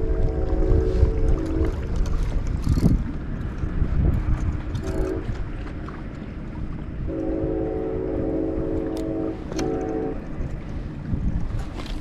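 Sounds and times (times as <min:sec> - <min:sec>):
train horn blast: 0:00.0 - 0:02.0, 0:04.8 - 0:05.4, 0:07.1 - 0:10.3
steady low rumble: 0:00.0 - 0:12.0.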